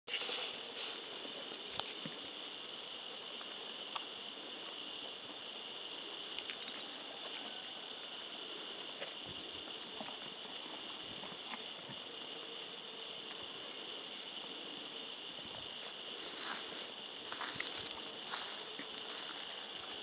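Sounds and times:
insect chorus: 0.1 - 20.0
faint clicks: 6.3 - 6.8.

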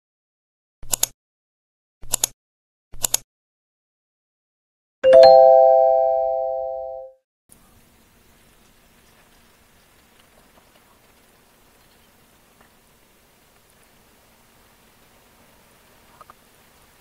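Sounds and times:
quick double clicks: 0.8 - 1.2, 2.0 - 2.4, 3.0 - 3.2
bright bell-like chime: 5.0 - 7.1.

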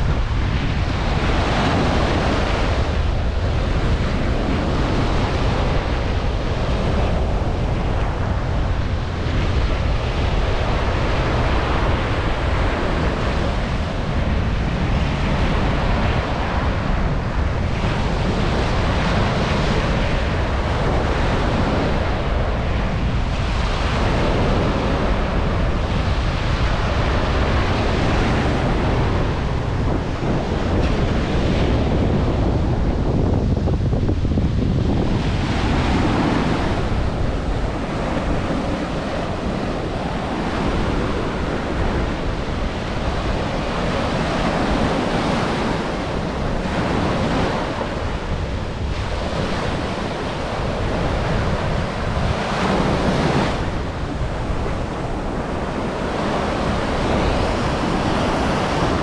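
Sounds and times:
ocean waves breaking on sand: 0.0 - 59.0
wind buffeting microphone: 0.0 - 59.0.

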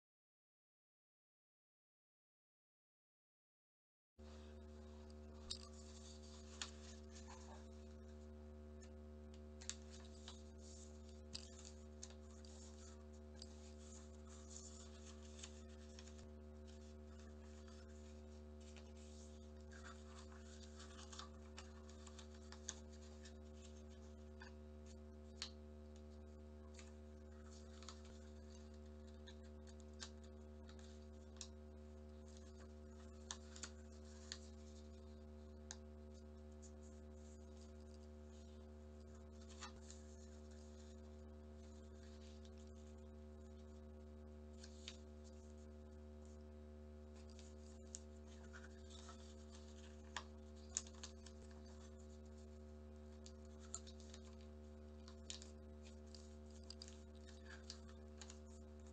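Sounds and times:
low hum: 4.2 - 58.9
paper rustling: 5.4 - 8.1, 8.8 - 58.9
paper creasing taps: 9.6 - 25.6, 32.3 - 35.0, 55.0 - 58.9.

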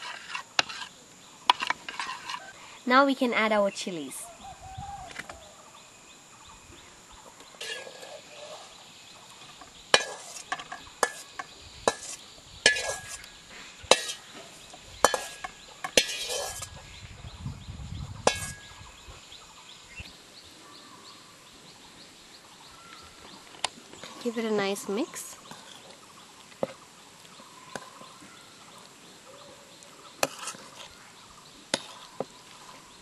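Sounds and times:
spoon clinking against bowls: 10.0 - 13.2, 15.0 - 16.7.

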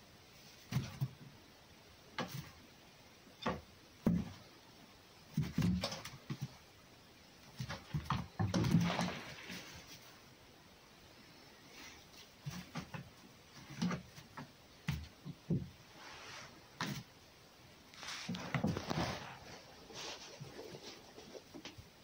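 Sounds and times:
fox scuffling in straw: 15.9 - 16.6, 17.9 - 21.6.

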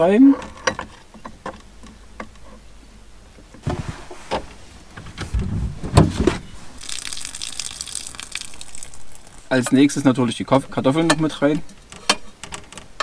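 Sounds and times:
heavy thumps and knocks: 3.6 - 6.6
steady hiss: 3.6 - 11.9.

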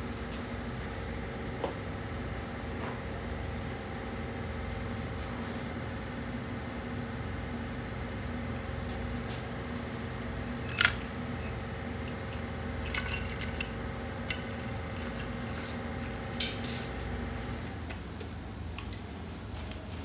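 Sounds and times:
machine hum: 6.4 - 18.7
metal tools clinking: 10.6 - 13.7, 14.3 - 16.2.

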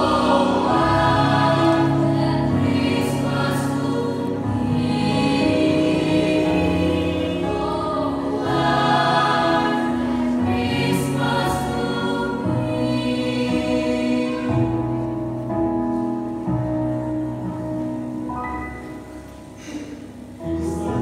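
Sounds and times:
youth choir singing: 0.0 - 15.0.

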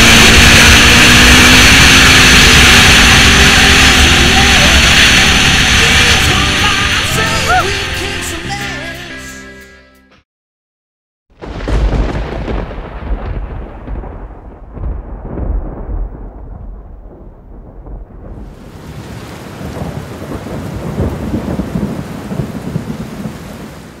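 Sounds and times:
heavy rain hiss: 0.0 - 8.2
thunder rumbling: 11.4 - 24.0.

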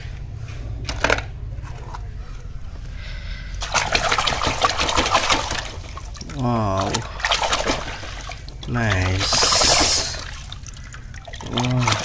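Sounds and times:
hand splashing water in basin: 3.6 - 12.0.

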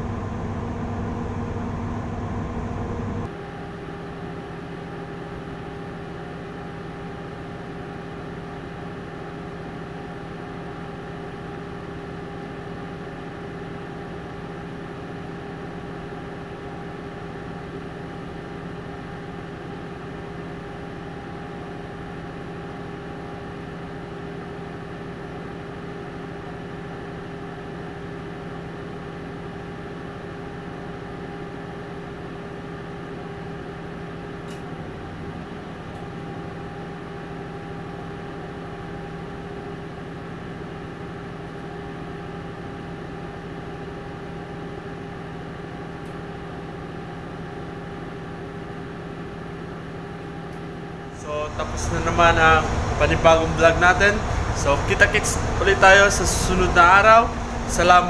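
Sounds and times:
engine-room machinery drone: 0.0 - 58.0.

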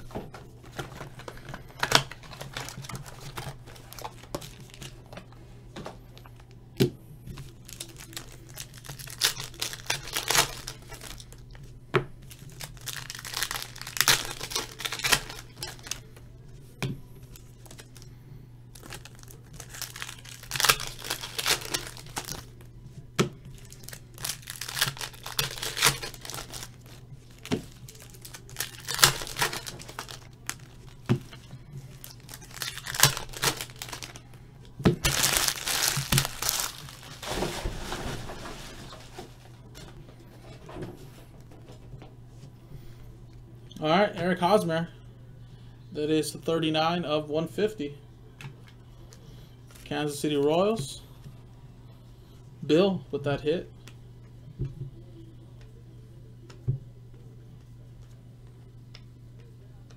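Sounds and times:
plastic wrapper crinkling and tearing: 0.0 - 5.4, 7.3 - 16.2, 17.2 - 18.1, 18.7 - 22.7, 23.5 - 39.5.

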